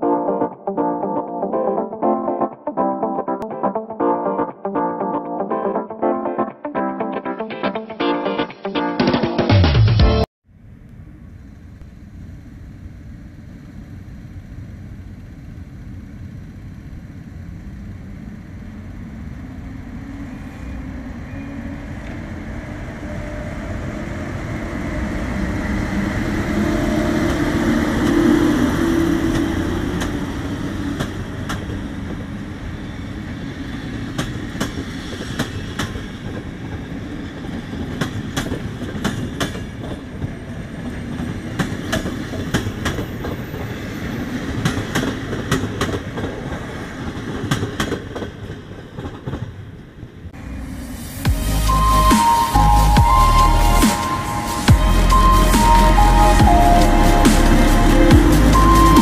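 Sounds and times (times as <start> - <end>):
electric locomotive passing: 10.6 - 59.0
wheels clicking over rail joints: 34.0 - 40.4, 44.5 - 50.0.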